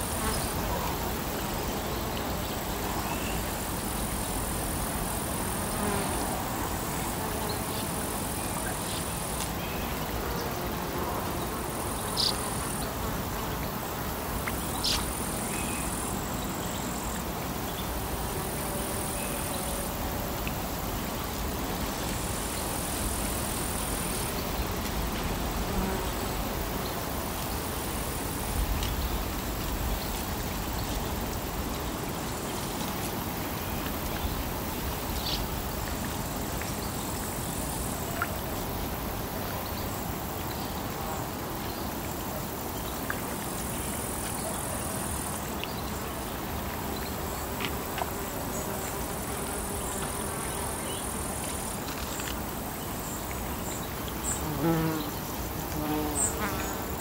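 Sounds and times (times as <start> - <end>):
high insect buzz: 0.0 - 32.9, 46.9 - 57.0.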